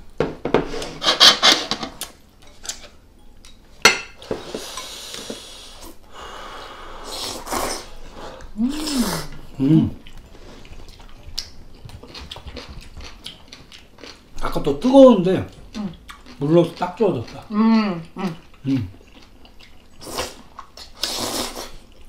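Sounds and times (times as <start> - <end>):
person humming: 6.2 - 10.0, 17.5 - 18.9
noodles slurped: 20.0 - 21.9.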